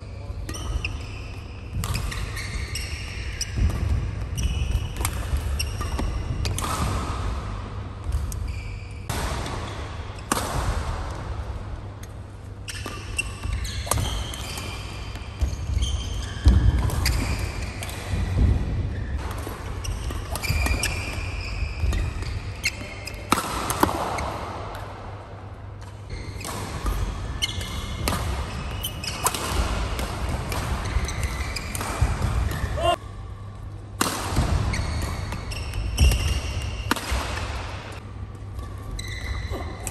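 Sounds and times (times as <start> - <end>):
shoes squeaking on court: 0.0 - 6.8, 8.1 - 9.8, 12.6 - 23.4, 26.1 - 33.0, 34.7 - 37.6, 38.5 - 39.9.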